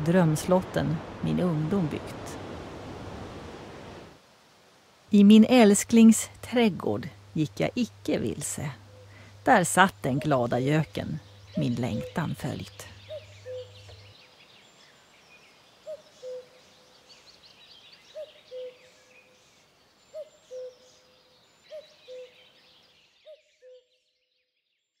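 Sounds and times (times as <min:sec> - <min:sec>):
faint songbird chatter: 0:07.5 - 0:25.0
cuckoo calling: 0:08.3 - 0:14.1, 0:15.8 - 0:16.7, 0:18.1 - 0:19.4, 0:20.1 - 0:21.1, 0:21.7 - 0:22.6, 0:23.3 - 0:23.9.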